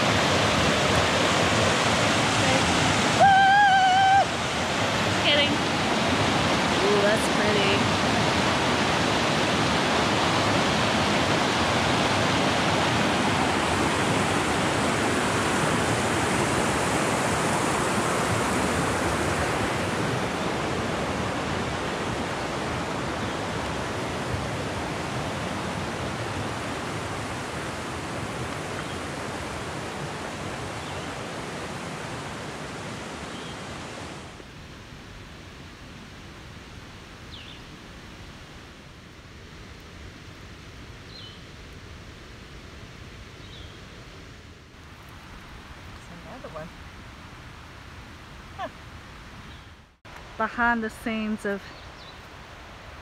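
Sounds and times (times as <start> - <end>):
creek rushing over rocks: 0.0 - 34.4.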